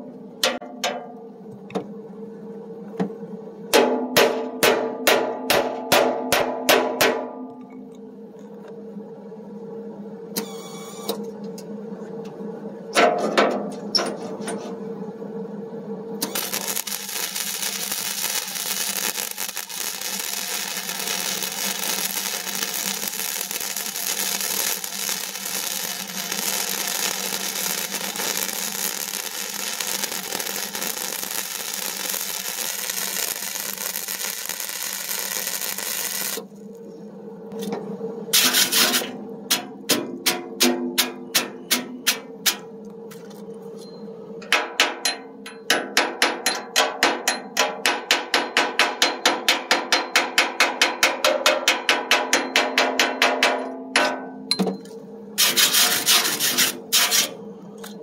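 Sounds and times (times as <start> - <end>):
power grinder grinding steel: 16.2 - 36.7, 55.4 - 57.4.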